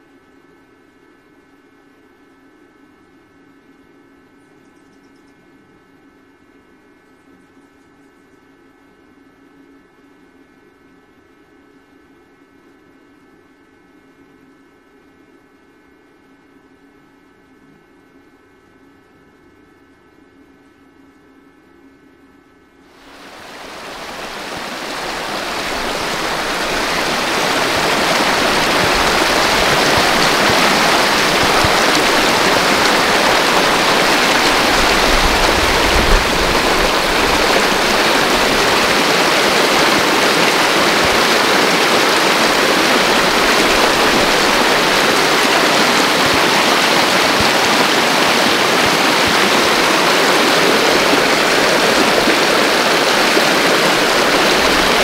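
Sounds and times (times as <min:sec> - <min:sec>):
stream rushing over rocks: 0:23.0 - 0:55.0.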